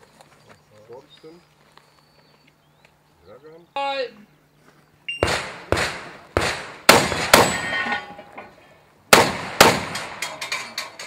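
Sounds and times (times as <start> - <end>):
shotgun shots: 5.2 - 7.9, 9.1 - 10.2.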